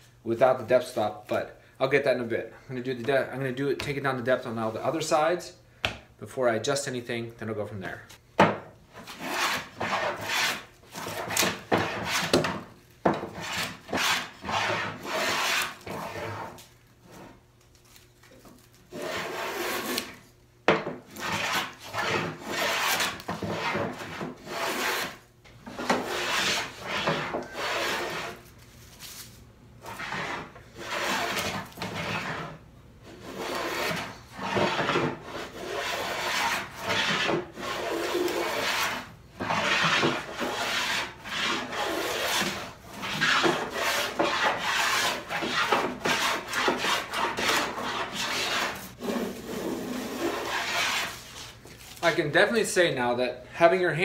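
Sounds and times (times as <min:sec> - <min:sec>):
hand plane rasping strokes: 0:09.0 - 0:12.4, 0:13.3 - 0:16.5, 0:18.9 - 0:20.2, 0:21.1 - 0:28.4, 0:29.8 - 0:32.5, 0:33.1 - 0:51.5.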